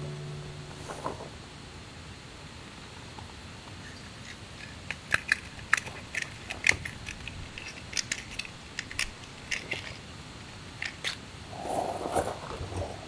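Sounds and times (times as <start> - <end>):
matchbox clicking and rattling: 4.0 - 11.2.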